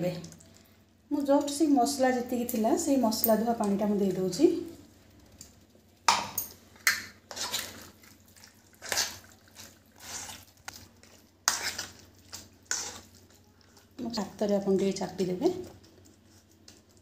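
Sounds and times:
spoon scraping metal bowl: 7.3 - 7.8, 10.0 - 10.4, 11.4 - 13.1.

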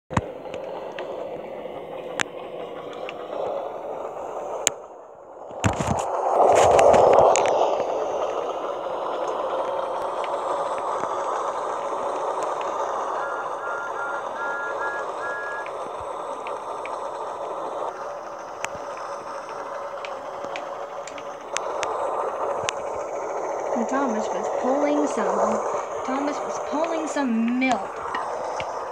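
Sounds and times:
toy train motor whirring: 0.4 - 28.9.

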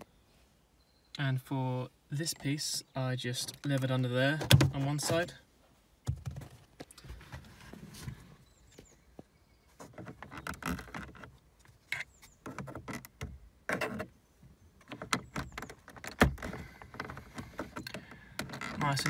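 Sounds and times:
plastic trim clicking and creaking: 9.9 - 14.1, 14.8 - 19.0.

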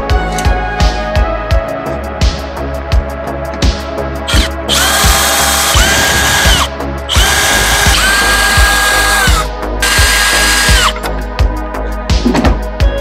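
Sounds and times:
background music with beat: 0.0 - 13.0
cordless drill motor whine: 4.3 - 11.0.

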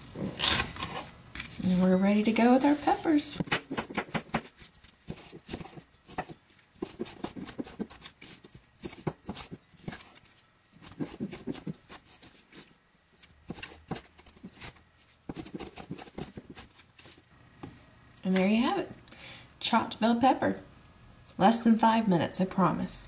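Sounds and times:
knife chopping on plastic board: 3.4 - 10.1, 10.8 - 11.9, 15.3 - 16.7.

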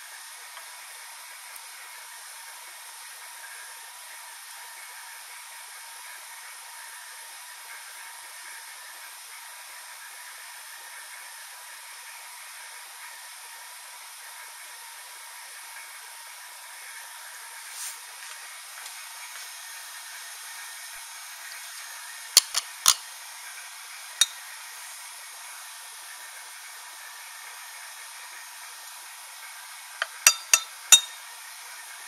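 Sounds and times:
glassware knocking: 22.4 - 23.0, 30.0 - 31.2.

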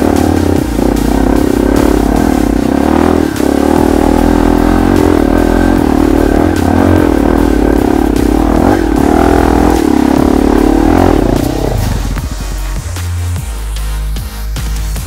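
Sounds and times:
dirt bike engine revving: 0.0 - 13.1.

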